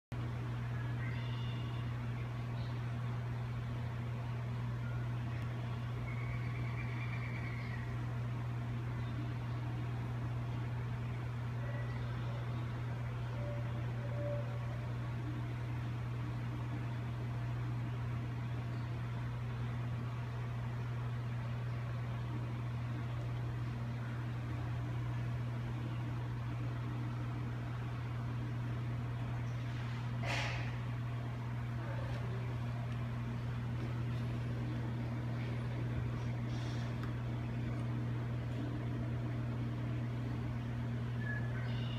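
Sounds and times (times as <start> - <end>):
low mechanical hum: 0.1 - 41.9.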